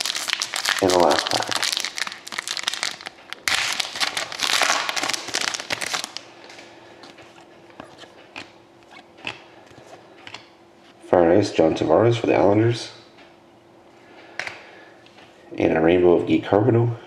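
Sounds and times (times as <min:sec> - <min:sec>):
foil pack tearing and crinkling: 0:00.0 - 0:06.2.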